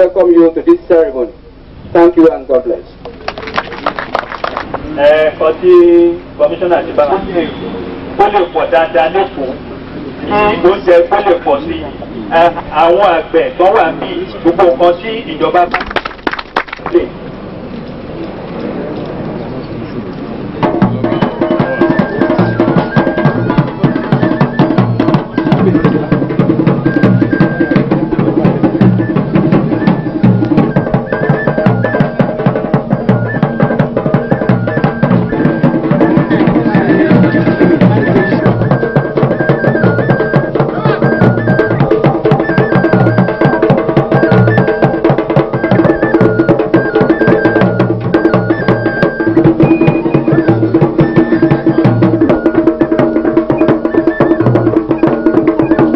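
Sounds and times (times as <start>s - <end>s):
drums and percussion rhythm: 1.9s - 55.9s
melody above the beat: 20.8s - 55.9s.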